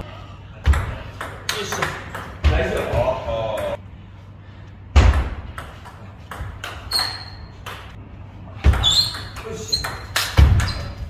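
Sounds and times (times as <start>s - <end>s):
shoes squeaking on floor: 6.8s - 7.6s, 8.6s - 11.0s.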